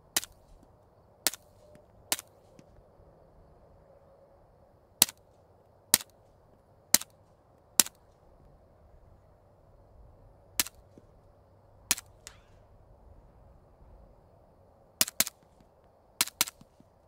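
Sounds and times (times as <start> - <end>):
suppressed pistol shots: 10.6 - 11.0, 11.9 - 12.8, 15.0 - 15.6, 16.2 - 16.8.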